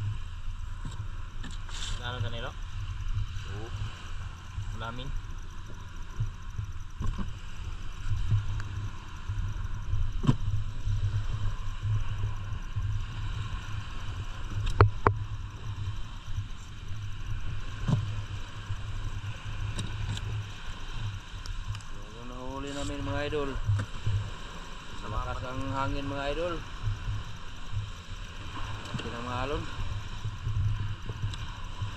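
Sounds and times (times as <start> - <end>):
wind buffeting microphone: 0.0 - 31.9.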